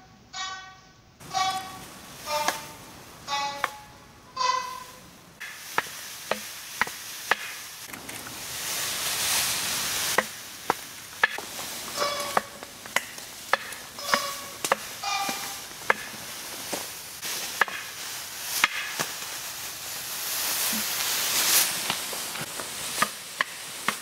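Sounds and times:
rushing hiss: 1.2s - 4.2s, 4.8s - 24.0s
sharp rhythmic knocks: 1.2s - 7.6s, 12.0s - 16.2s.

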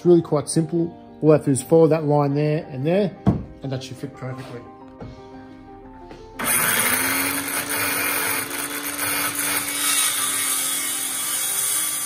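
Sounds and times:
circular saw cutting wood: 6.4s - 12.0s.

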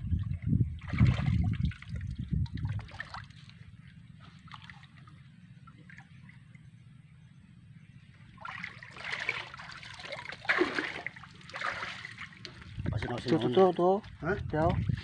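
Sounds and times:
water splashing and sloshing: 0.0s - 6.8s, 8.2s - 15.0s
faint water trickle: 0.1s - 7.0s.

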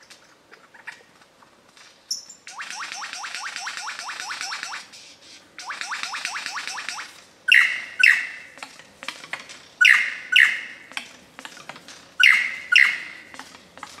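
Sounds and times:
loud ringing bird calls: 2.1s - 8.6s, 9.8s - 11.0s, 12.2s - 13.4s
sharp bird clicks: 2.1s - 11.5s, 12.2s - 14.0s
rising whistled bird notes: 2.2s - 4.9s, 5.6s - 8.4s, 9.8s - 10.8s, 12.2s - 13.2s.

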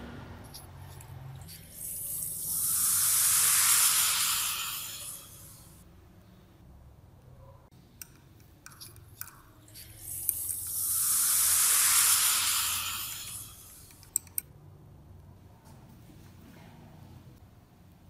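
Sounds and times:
liquid fizzing in a beaker: 1.4s - 5.8s, 9.5s - 14.0s.

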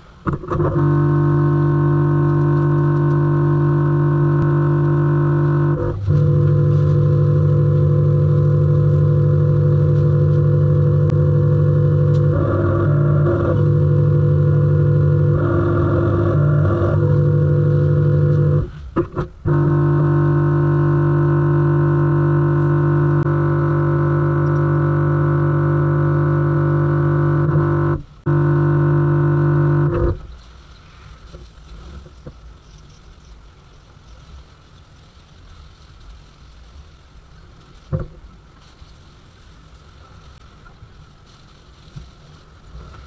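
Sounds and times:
pressure washer buzzing hum: 0.3s - 30.3s.

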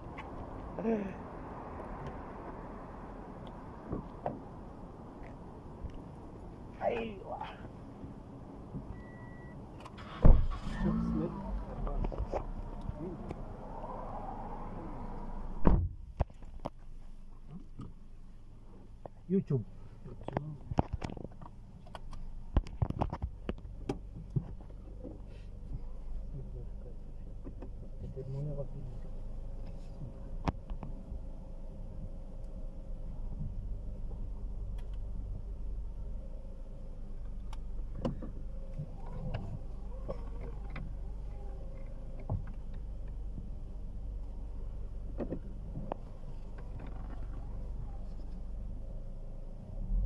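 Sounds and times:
car cabin rumble: 15.4s - 50.0s.

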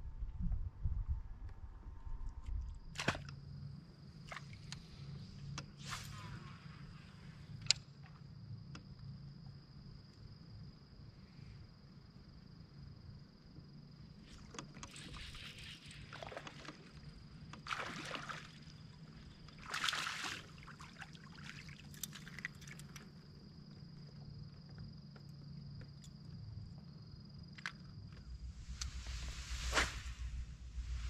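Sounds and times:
water sloshing around kayak hull: 14.3s - 23.1s.

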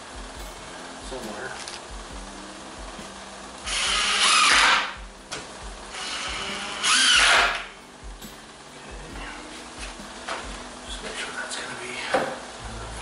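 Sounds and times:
cordless drill driving screws: 3.7s - 5.0s, 5.9s - 7.7s.

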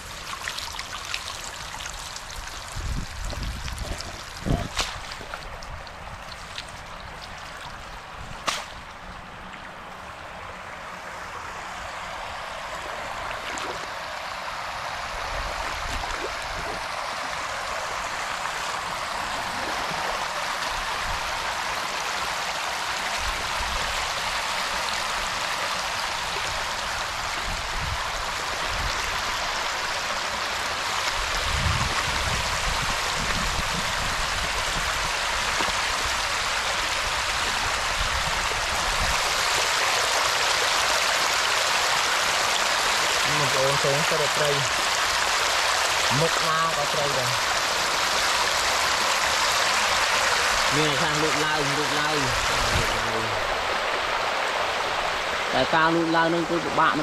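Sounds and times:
running water rushing: 0.0s - 57.0s
sharp click: 8.4s - 8.7s.

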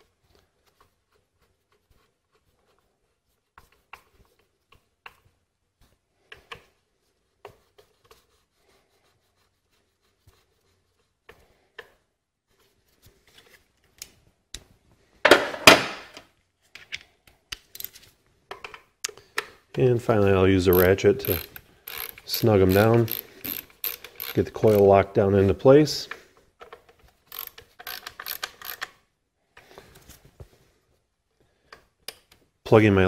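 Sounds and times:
small clicks and rubbing: 20.7s - 24.9s.

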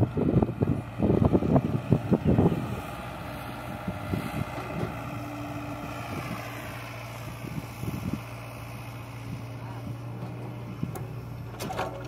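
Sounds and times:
diesel engines idling: 0.0s - 12.0s
soil rattling into steel trolley: 10.0s - 12.0s.

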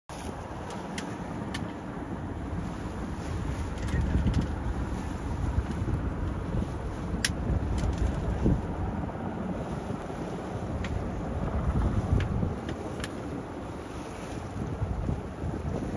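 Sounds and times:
steady low noise: 3.7s - 12.7s.

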